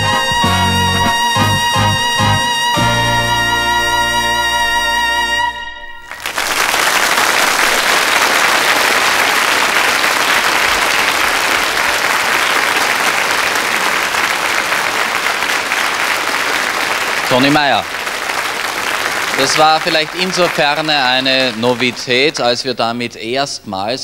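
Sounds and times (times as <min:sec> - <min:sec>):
trumpet and band chord: 0:00.0 - 0:06.2
audience applause: 0:06.0 - 0:23.1.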